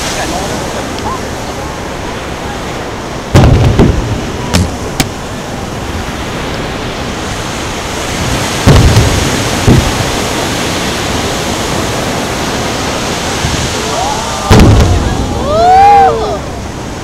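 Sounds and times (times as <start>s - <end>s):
fireworks bursting: 3.2s - 5.4s, 7.9s - 11.9s, 14.5s - 15.4s.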